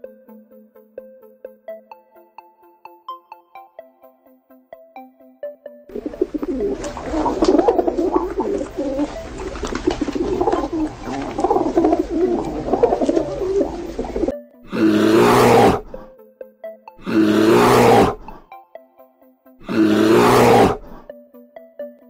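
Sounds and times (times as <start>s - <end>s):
pigeons cooing: 5.9s - 16.1s, 17.0s - 18.4s, 19.6s - 21.0s
bear roaring: 6.0s - 16.1s, 17.0s - 18.4s, 19.6s - 21.0s.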